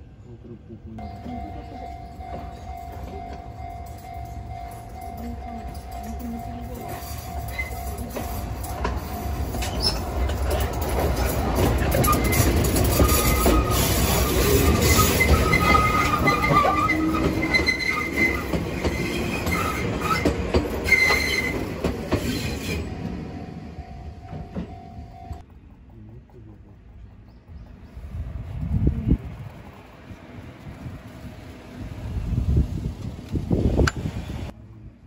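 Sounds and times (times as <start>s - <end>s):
train wheels rumbling on rails: 1.0s - 35.0s
squealing train wheels: 2.2s - 25.4s.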